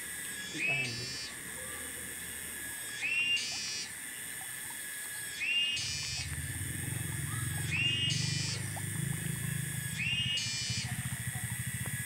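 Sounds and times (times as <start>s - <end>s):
steady high whine: 0.0s - 12.0s
animal call with buzzy rasp: 5.3s - 11.8s
low pulsing hum: 5.8s - 12.0s.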